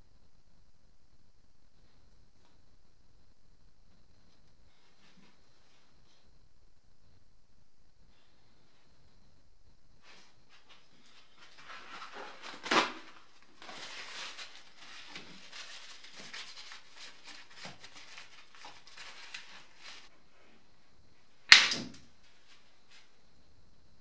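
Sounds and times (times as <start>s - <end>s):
loud sharp snap: 21.5s - 22.1s.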